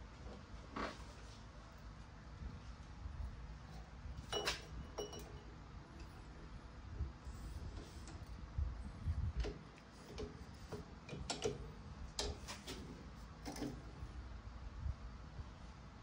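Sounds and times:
faint low rumble: 0.0 - 10.5.

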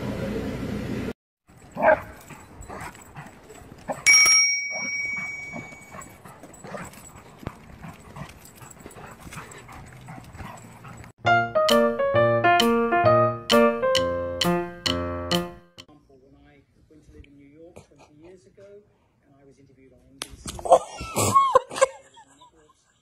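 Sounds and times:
footsteps on sidewalk: 1.5 - 11.2.

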